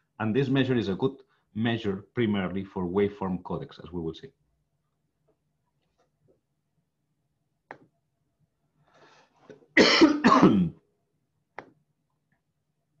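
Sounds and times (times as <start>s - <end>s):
man coughing: 9.8s - 10.8s.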